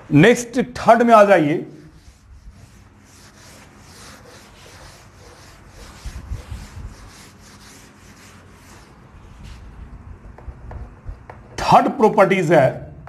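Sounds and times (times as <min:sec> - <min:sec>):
cloth rubbing on chalkboard: 0:01.5 - 0:09.8.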